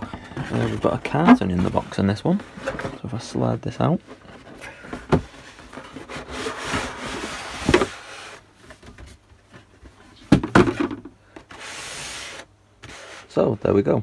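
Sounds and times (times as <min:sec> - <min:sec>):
cardboard carton sliding and scraping: 0:05.4 - 0:08.4, 0:11.5 - 0:13.5.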